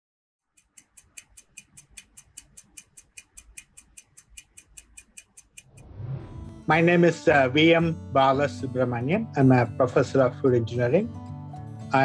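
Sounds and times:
stopwatch ticking: 0.4 - 5.9.

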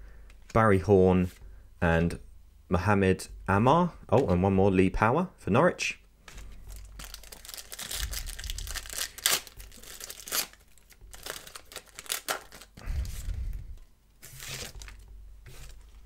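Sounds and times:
foil wrapper tearing and crinkling: 6.7 - 12.8, 14.2 - 15.8.

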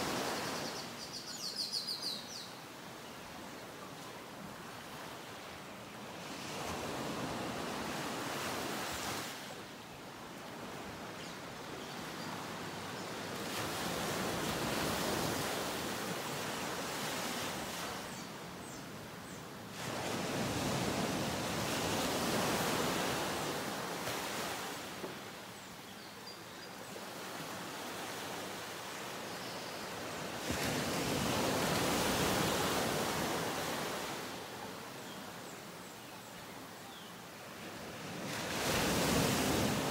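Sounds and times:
ocean waves washing: 38.0 - 39.9.

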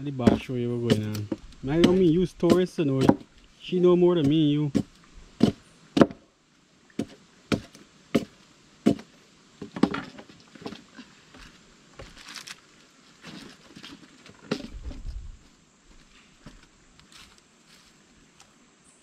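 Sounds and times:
machete chopping wood: 0.2 - 3.3, 4.2 - 6.3, 7.0 - 9.1
dull thump on boards: 0.3 - 3.3, 4.2 - 6.3, 7.0 - 10.3
wood splitting crackle: 0.3 - 3.4, 12.0 - 12.6.

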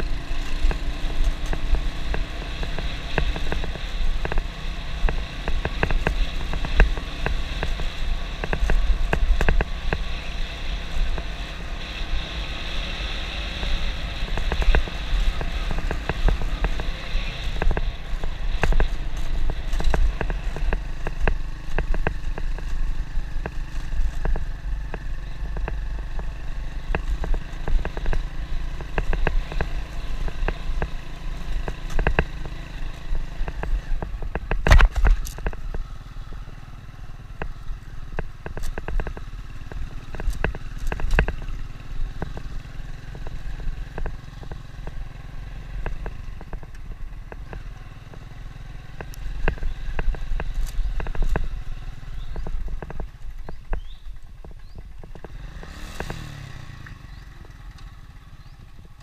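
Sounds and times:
motorbike engine rumble: 0.0 - 59.0
motorbike knocks and rattles: 14.2 - 36.6, 49.0 - 56.4.

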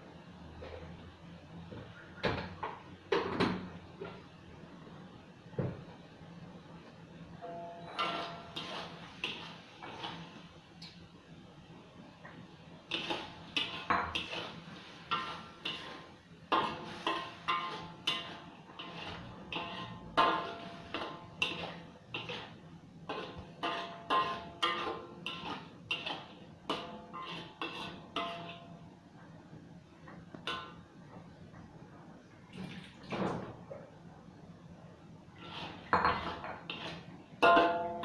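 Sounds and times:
wok ringing: 7.4 - 10.2, 16.5 - 22.3, 23.1 - 28.9, 30.4 - 30.9, 37.4 - 38.0
metal ladle scraping a wok: 7.5 - 10.5, 12.8 - 28.9, 35.3 - 38.0.

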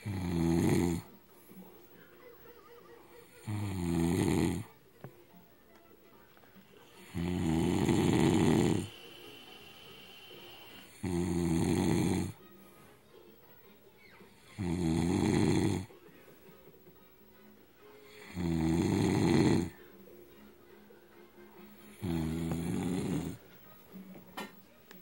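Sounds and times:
man snoring loudly: 0.0 - 1.1, 3.4 - 4.7, 7.0 - 12.4, 14.6 - 15.9, 18.2 - 19.8, 22.0 - 23.4.

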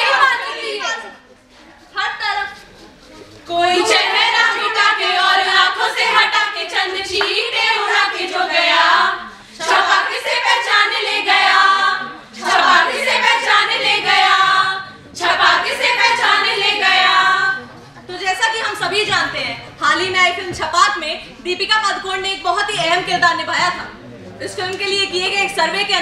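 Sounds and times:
women singing in unison: 0.0 - 1.1, 3.5 - 17.6.

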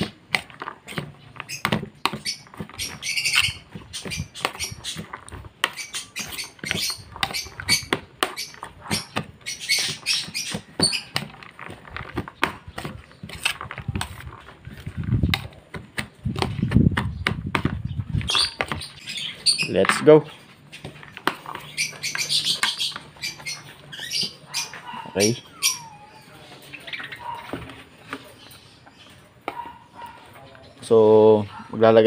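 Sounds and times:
fork scraping plastic plate: 0.0 - 16.8
food rustling being stirred: 0.2 - 16.8.

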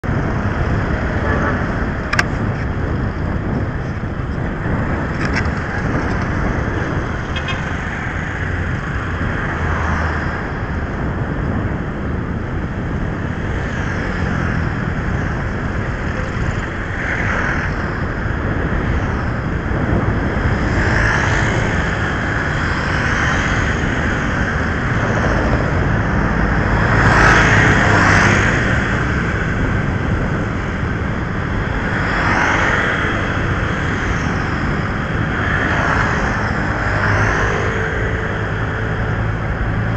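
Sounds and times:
passing traffic: 0.0 - 39.9
road noise: 0.0 - 39.9
wind rushing over microphone: 0.0 - 39.9.

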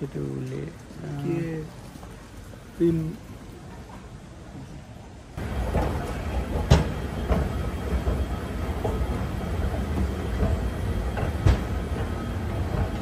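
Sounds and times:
escalator mechanical rumble: 5.4 - 13.0.

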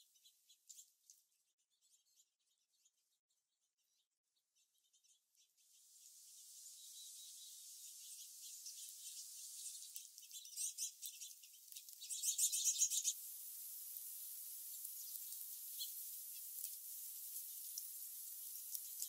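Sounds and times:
small birds chirping: 0.0 - 19.0
faint steady hiss: 5.6 - 19.0.

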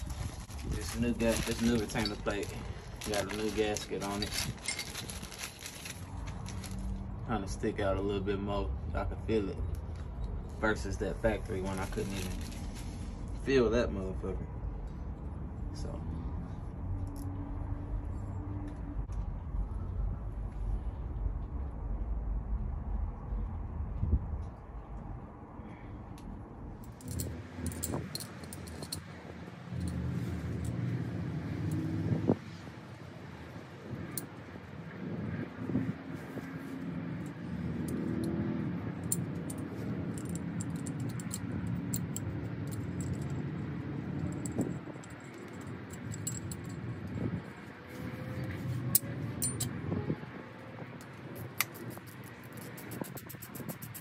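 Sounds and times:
metal parts and tools clinking: 0.0 - 7.0, 26.8 - 31.0, 37.2 - 49.9
low rumble: 14.5 - 28.9
metallic clicks of tools: 39.0 - 43.4.

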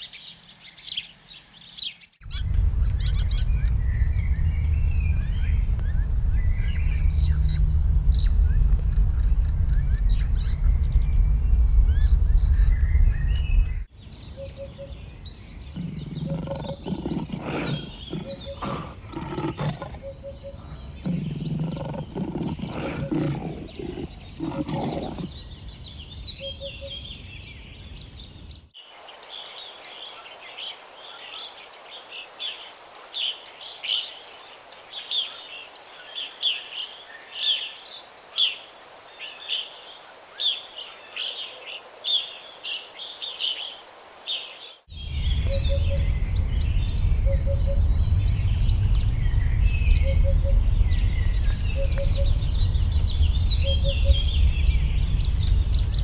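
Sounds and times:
birds chirping: 0.0 - 56.0
low rumble: 2.2 - 13.9, 44.9 - 56.0.

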